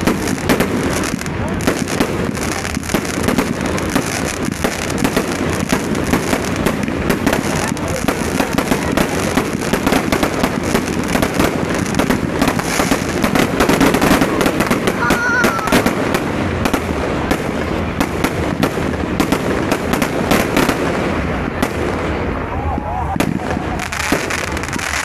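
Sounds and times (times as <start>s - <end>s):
fireworks bangs and crackle: 0.0s - 25.0s.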